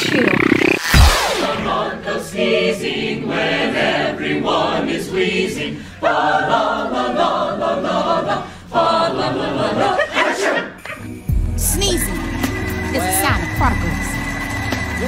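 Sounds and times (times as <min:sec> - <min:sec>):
mixed choir singing: 0:01.3 - 0:11.1.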